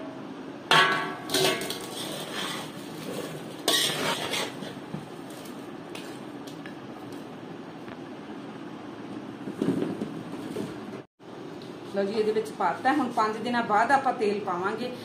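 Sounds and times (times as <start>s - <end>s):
metal clanking against tub: 0.7s - 2.0s
spoon scraping metal tub: 1.3s - 4.8s.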